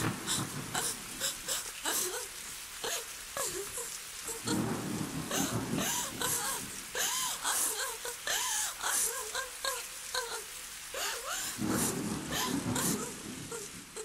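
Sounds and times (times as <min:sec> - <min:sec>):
thunder rumbles: 0:00.0 - 0:02.2, 0:04.3 - 0:09.1, 0:11.0 - 0:14.0
rain hiss: 0:00.0 - 0:14.0.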